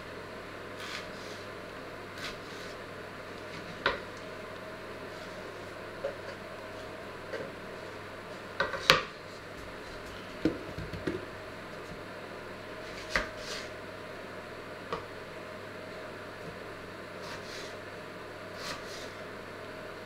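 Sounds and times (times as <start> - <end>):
onion scraped into pot: 0.8 - 1.5.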